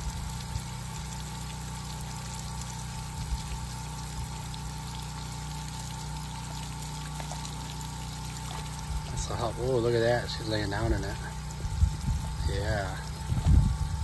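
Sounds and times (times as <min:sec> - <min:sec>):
hose spraying water: 0:00.0 - 0:14.0
steady low hum: 0:00.0 - 0:14.0.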